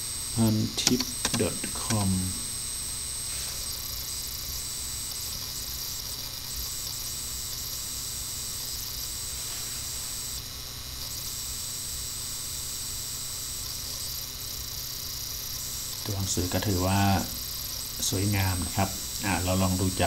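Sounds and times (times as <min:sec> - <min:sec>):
faint high-pitched whine: 0:00.0 - 0:20.0
background hiss: 0:09.2 - 0:10.3.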